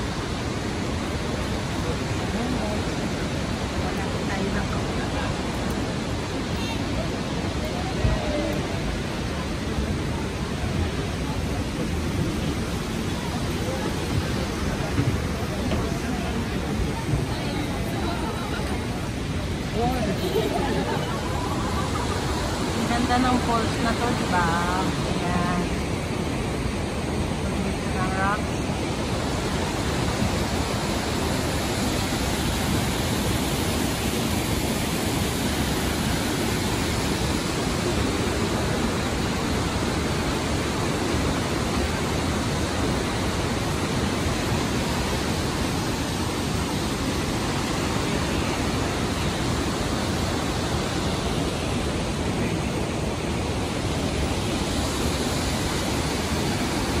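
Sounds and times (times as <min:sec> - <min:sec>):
waterfall rushing: 0:00.0 - 0:57.0.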